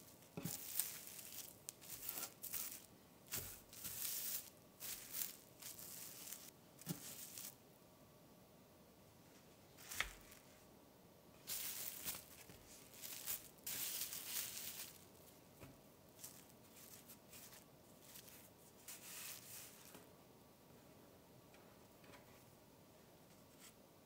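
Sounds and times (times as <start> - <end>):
cling film crinkling: 0.0 - 7.6, 11.4 - 15.2
dough rustling on wooden board: 0.0 - 7.6, 11.4 - 15.2, 16.2 - 20.0.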